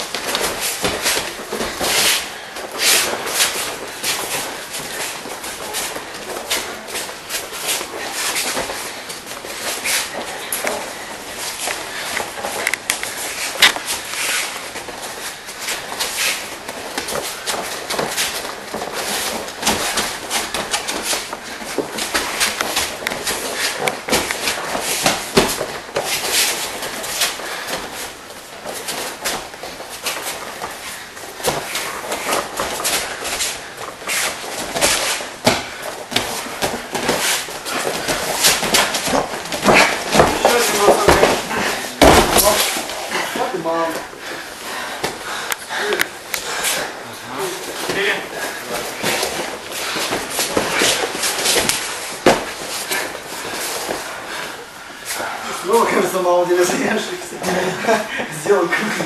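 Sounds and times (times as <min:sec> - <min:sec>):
grapplers scuffling on a mat: 0:00.0 - 0:59.0
bodies thudding on a mat: 0:31.4 - 0:43.4, 0:48.8 - 0:54.2.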